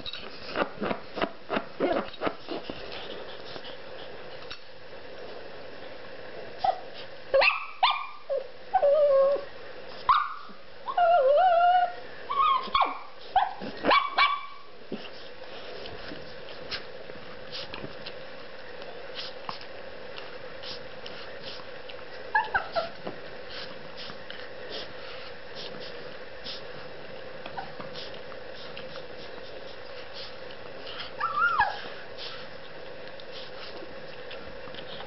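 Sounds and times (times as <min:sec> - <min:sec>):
dog whining: 0:06.6 - 0:09.5, 0:10.1 - 0:14.7, 0:22.3 - 0:23.0, 0:27.5 - 0:27.9, 0:30.9 - 0:32.4
dog barking and yipping: 0:07.4 - 0:08.2, 0:10.1 - 0:10.5, 0:12.3 - 0:14.7, 0:31.2 - 0:31.9.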